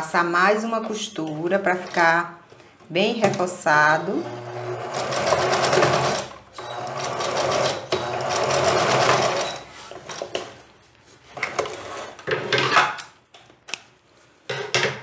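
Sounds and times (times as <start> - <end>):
electric sewing machine stitching: 4.2 - 10.3.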